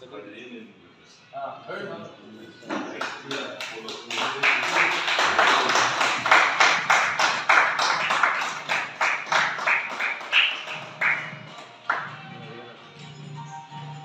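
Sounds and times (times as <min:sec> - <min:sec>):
people clapping: 0:02.9 - 0:12.3.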